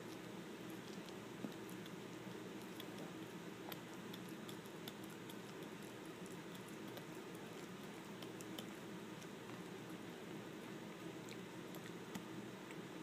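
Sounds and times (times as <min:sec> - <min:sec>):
dog chewing clicks: 0:00.1 - 0:09.6.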